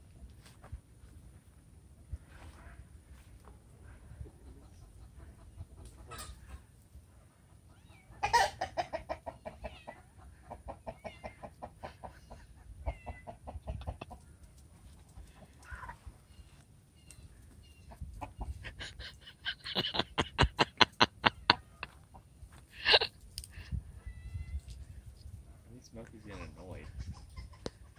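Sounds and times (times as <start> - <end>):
chicken clucking: 3.9 - 23.2, 26.1 - 27.9.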